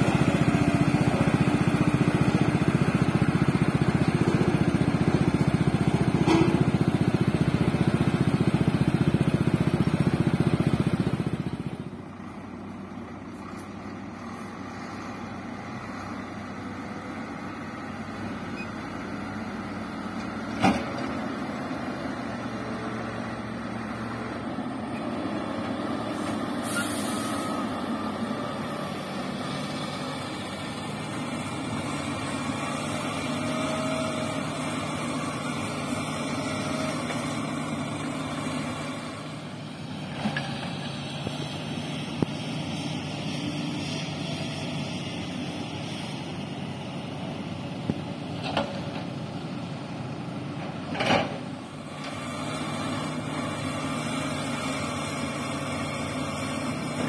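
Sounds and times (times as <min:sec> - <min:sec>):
diesel engine running: 0:00.0 - 0:57.0
brief hiss: 0:26.2 - 0:27.7.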